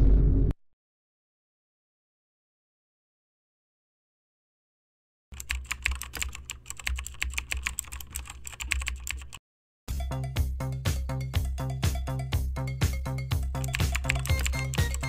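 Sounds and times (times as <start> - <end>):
rapid keyboard typing: 5.4 - 9.4, 13.6 - 15.0
music: 9.9 - 15.0.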